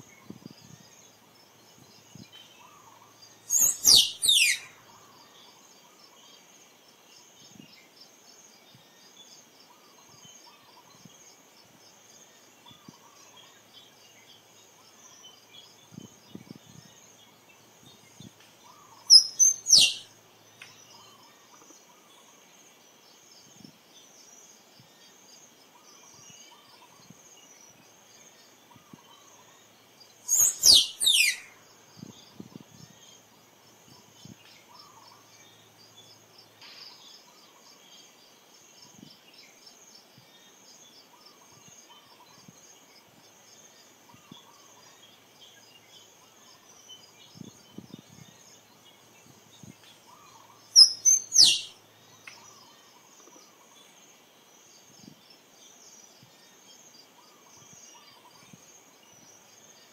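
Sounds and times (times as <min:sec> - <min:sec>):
squirrel chirping: 0:03.5 - 0:04.7, 0:19.1 - 0:20.1, 0:30.3 - 0:31.5, 0:50.8 - 0:51.8.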